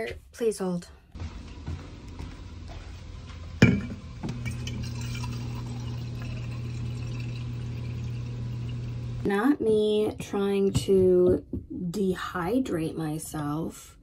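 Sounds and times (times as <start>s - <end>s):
water dispenser humming: 3.5s - 10.0s
water streaming into tumbler: 4.5s - 9.3s.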